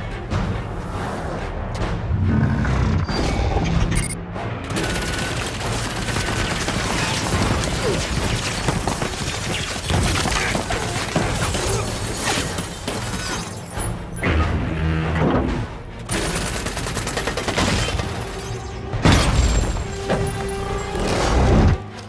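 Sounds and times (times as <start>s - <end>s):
dramatic orchestral score: 0.0s - 22.0s
heavy gunfire: 4.7s - 11.4s.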